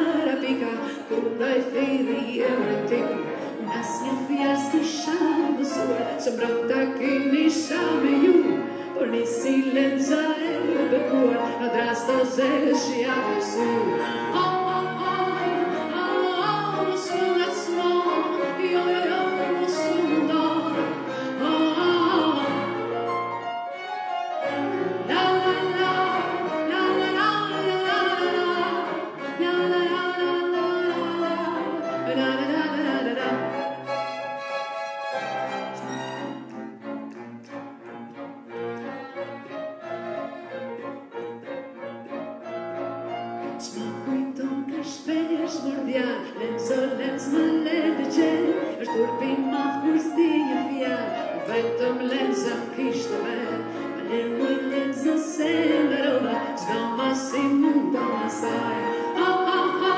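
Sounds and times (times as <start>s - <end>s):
woman singing into microphone: 0.0s - 22.7s, 25.1s - 33.5s, 43.6s - 59.9s
piano: 0.0s - 59.9s
string instruments: 0.0s - 59.9s.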